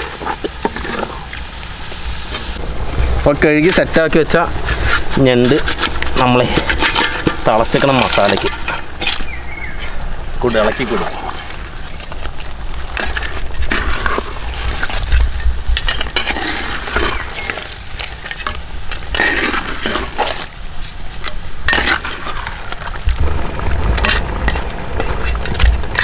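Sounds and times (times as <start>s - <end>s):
spatula scraping in clay pot: 4.6s - 10.0s.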